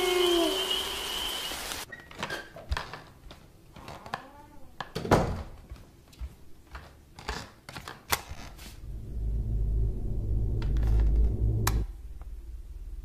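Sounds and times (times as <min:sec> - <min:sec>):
faint low hum: 0:08.8 - 0:13.0
low rumbling horror drone: 0:08.8 - 0:13.0.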